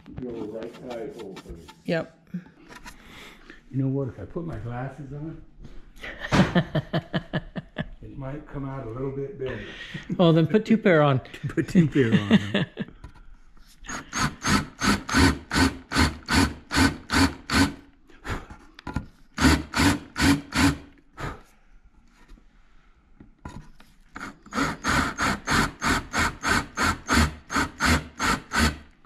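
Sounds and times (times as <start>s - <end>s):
drill rasping cut: 13.9s - 17.9s, 19.4s - 20.9s, 24.2s - 29.0s.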